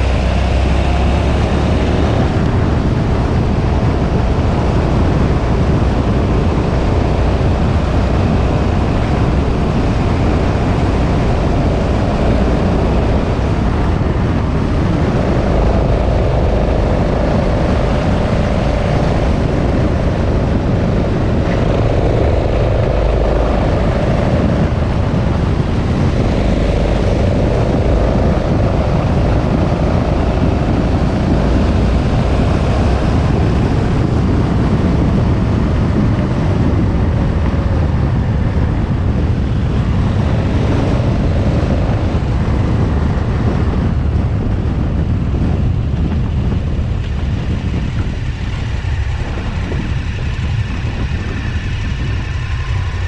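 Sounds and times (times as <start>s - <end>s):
motorcycle engine running: 0.0s - 53.0s
wind rushing over microphone: 0.0s - 53.0s.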